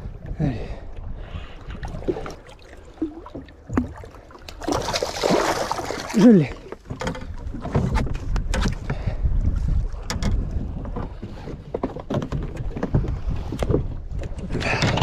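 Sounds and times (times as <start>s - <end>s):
wind rumbling on microphone: 7.0s - 15.0s.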